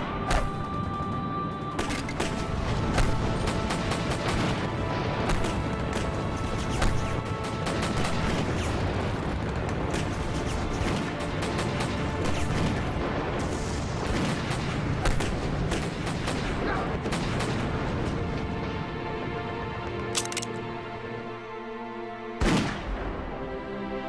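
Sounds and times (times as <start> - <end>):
dramatic music: 0.0 - 24.0
gunshots: 1.8 - 17.8, 22.4 - 23.0.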